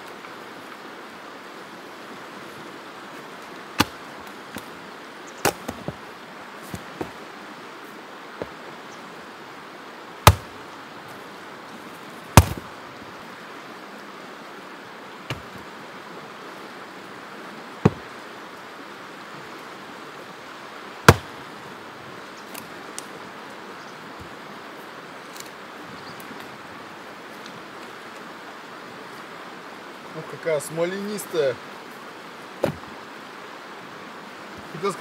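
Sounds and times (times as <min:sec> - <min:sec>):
axe chopping wood: 0:03.8 - 0:04.7, 0:05.4 - 0:06.0, 0:10.2 - 0:10.6, 0:12.4 - 0:12.7, 0:15.3 - 0:15.5, 0:17.8 - 0:18.1, 0:21.0 - 0:21.4, 0:32.6 - 0:32.9.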